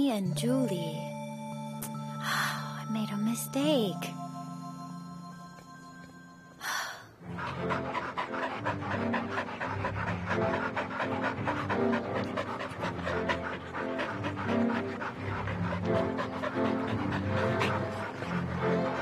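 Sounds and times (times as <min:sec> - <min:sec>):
background music: 0:00.0 - 0:19.0
dogs panting: 0:07.1 - 0:19.0.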